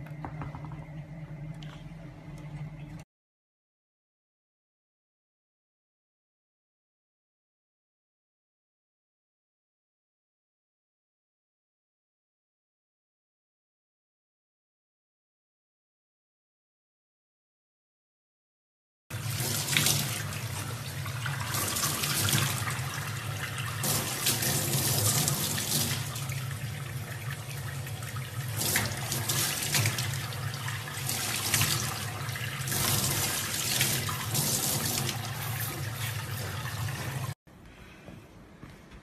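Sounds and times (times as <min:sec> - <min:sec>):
tap water running into sink: 0:19.1 - 0:37.4.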